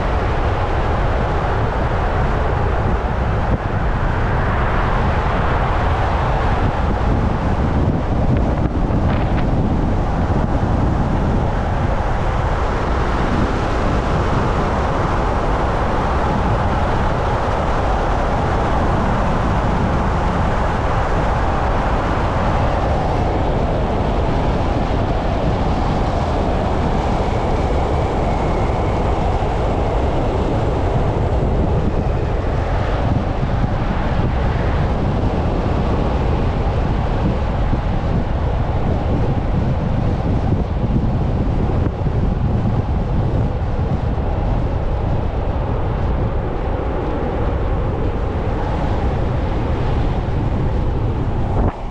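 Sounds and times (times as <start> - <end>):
wind noise on microphone: 0.0 - 51.9.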